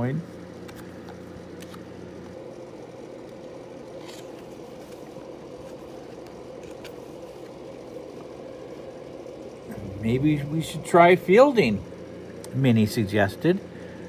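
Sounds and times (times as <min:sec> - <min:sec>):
steady background hum: 0:00.0 - 0:14.0
book page turning: 0:03.9 - 0:07.6.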